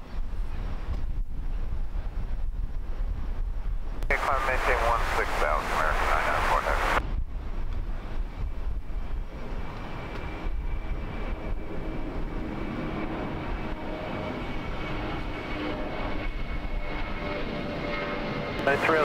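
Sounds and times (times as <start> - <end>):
jet engines rumbling at takeoff: 0.0 - 19.0
high engine whine: 4.0 - 19.0.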